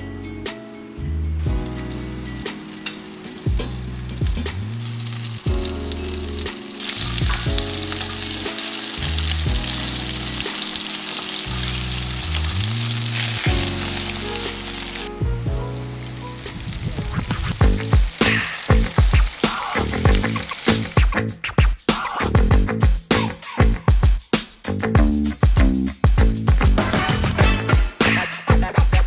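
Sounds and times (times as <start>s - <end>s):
background music: 0.0s - 23.8s, 24.8s - 29.0s
meat patties sizzling in oil: 1.3s - 21.4s
metal tongs clicking: 2.8s - 3.2s.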